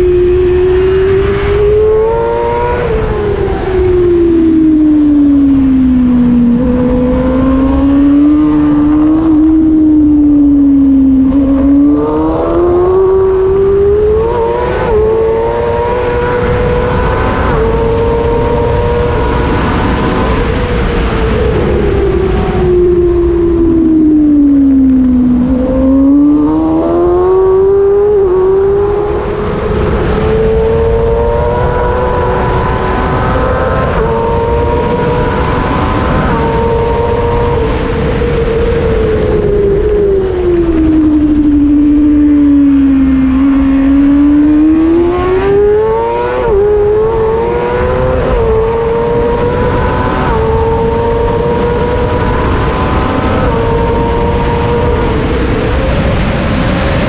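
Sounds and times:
motorcycle engine screaming at high revs: 0.0s - 57.0s
wind noise: 0.0s - 57.0s.

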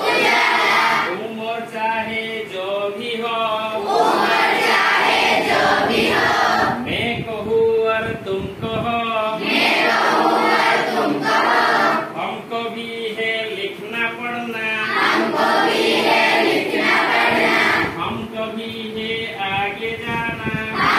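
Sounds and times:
children singing together: 0.0s - 1.1s, 3.8s - 6.8s, 9.4s - 12.1s, 14.9s - 18.0s.

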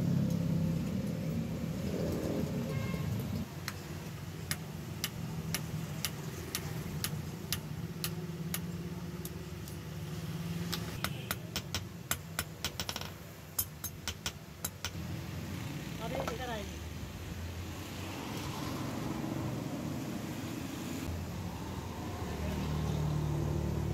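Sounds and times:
hammer tapping on anvil: 11.0s - 15.0s.

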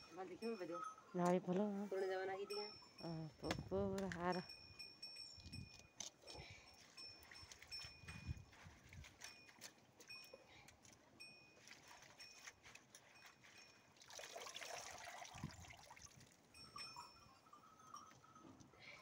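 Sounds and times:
water trickling and splashing: 5.4s - 19.0s.

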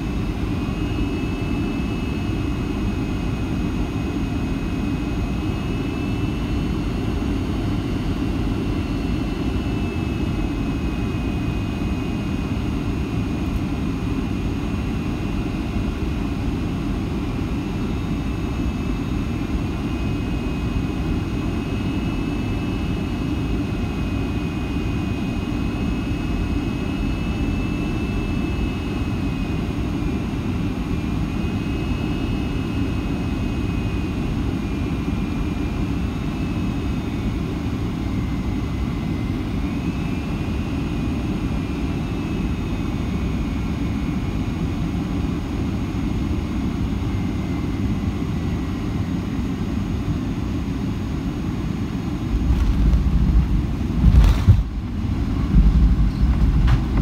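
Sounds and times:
high engine whine: 0.0s - 57.0s
aircraft cabin rush: 52.2s - 57.0s.

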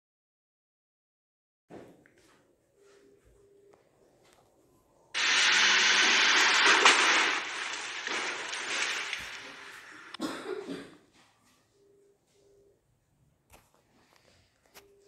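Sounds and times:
car crashing into barrier: 5.2s - 10.2s
noisy rush: 5.2s - 10.2s.

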